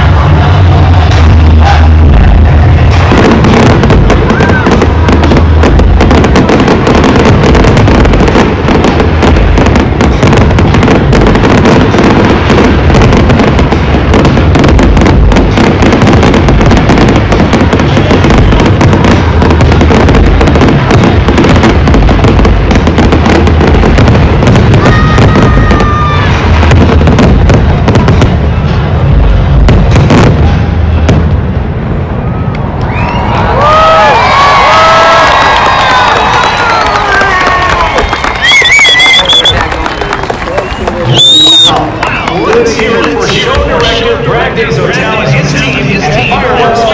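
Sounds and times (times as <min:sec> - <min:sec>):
firework whistle: 0:00.0 - 0:26.7, 0:32.3 - 0:42.3
fireworks bursting and crackling: 0:00.0 - 0:46.9.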